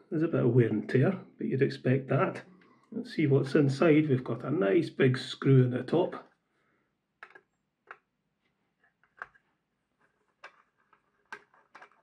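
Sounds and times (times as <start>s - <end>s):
screwdriver clicks and taps: 7.2s - 8.0s.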